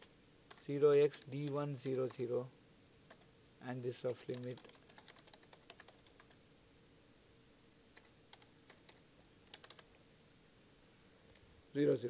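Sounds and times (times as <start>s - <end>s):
faint typing on computer keyboard: 0.0s - 2.3s, 3.1s - 3.3s, 3.9s - 6.4s, 7.9s - 10.0s.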